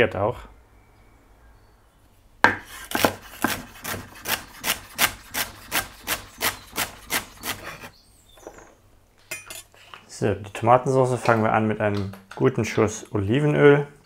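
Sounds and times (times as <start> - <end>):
knife chopping vegetables: 2.5 - 7.9.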